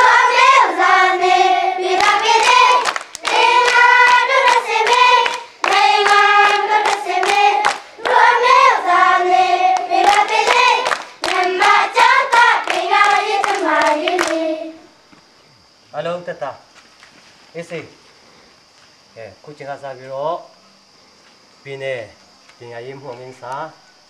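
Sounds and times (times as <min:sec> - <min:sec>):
children singing together: 0:00.0 - 0:14.9
children clapping in time: 0:02.0 - 0:08.6, 0:09.7 - 0:14.5.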